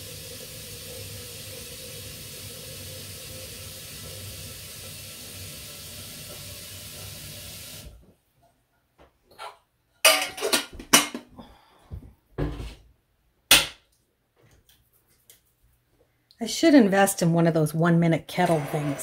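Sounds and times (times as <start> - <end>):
water heating hiss: 0.0 - 8.0.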